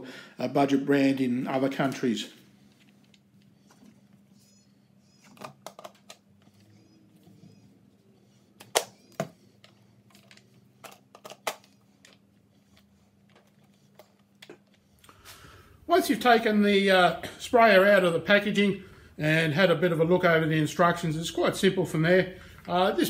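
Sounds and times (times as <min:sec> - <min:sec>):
plastic parts clicking and knocking: 0:05.2 - 0:06.3, 0:08.6 - 0:14.8.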